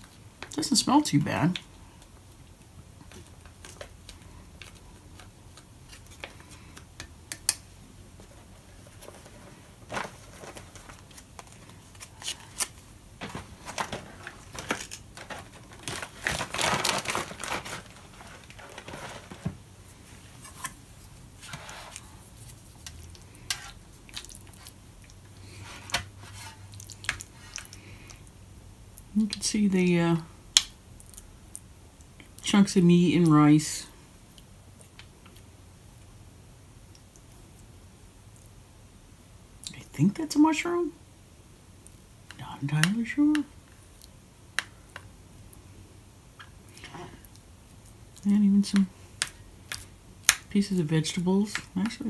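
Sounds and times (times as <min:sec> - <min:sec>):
food pouch crinkling: 0:09.9 - 0:19.5.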